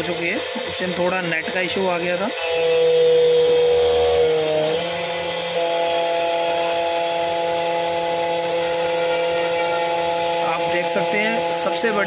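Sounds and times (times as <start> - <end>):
key-cutting machine whine: 0.0 - 12.0.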